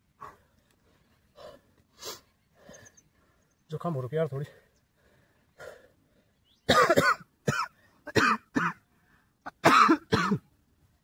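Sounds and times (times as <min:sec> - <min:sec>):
man coughing: 0:06.7 - 0:08.8, 0:09.5 - 0:10.4.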